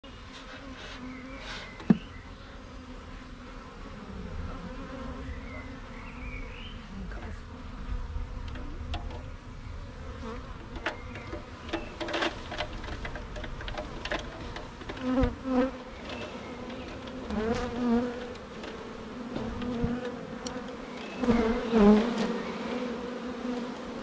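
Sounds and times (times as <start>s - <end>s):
bee swarm buzzing: 0.2s - 24.0s.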